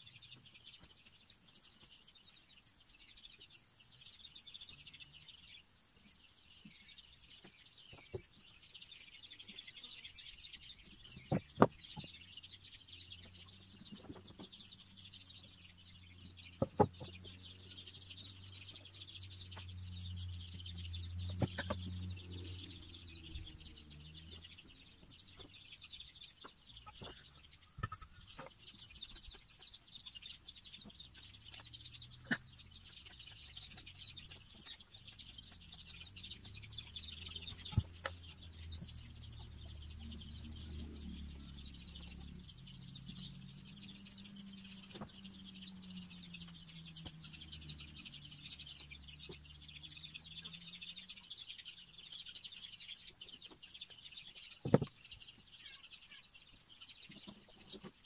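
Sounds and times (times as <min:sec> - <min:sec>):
insect drone: 0:00.0 - 0:58.0
low hum: 0:14.6 - 0:25.4.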